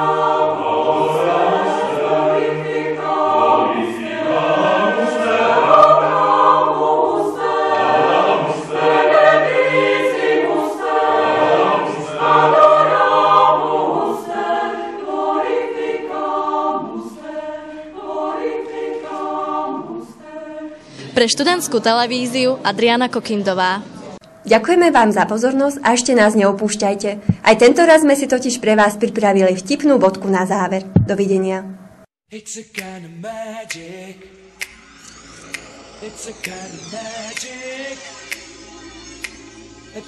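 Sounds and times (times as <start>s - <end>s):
mixed choir singing in harmony: 0.0s - 22.8s, 32.9s - 40.0s.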